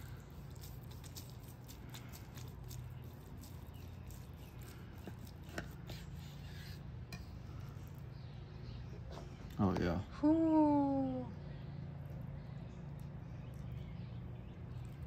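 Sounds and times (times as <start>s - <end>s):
knife slicing through meatloaf: 0.0s - 7.3s
crackling of crisp bacon: 0.0s - 8.5s, 11.8s - 15.0s
low steady hum: 0.0s - 15.0s.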